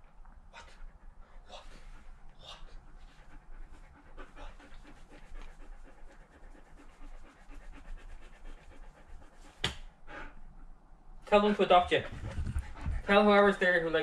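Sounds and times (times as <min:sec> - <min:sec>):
dog panting: 0:00.0 - 0:14.0.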